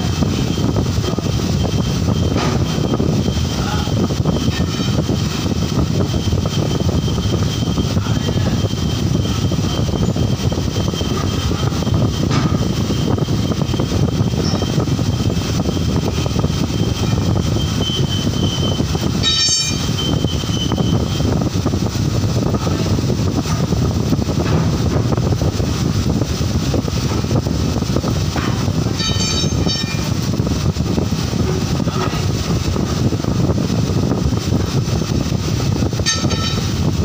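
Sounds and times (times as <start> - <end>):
faint high whine: 0.0 - 21.4
machinery whirring: 0.0 - 37.0.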